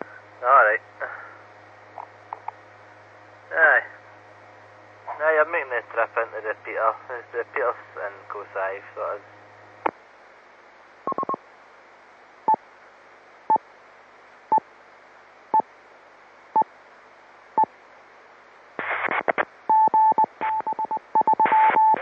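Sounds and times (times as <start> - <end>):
radio channel hiss: 0.0 - 1.4, 3.5 - 4.0, 5.1 - 10.0, 18.7 - 19.6
bursts of radio noise: 18.8 - 19.5
short beeps: 19.7 - 22.0.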